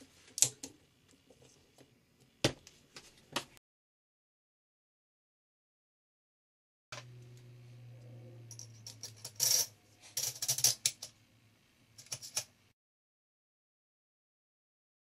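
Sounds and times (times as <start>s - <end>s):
steady low hum: 7.0s - 12.3s
metal parts clicking and clinking: 8.5s - 11.2s, 12.0s - 12.5s.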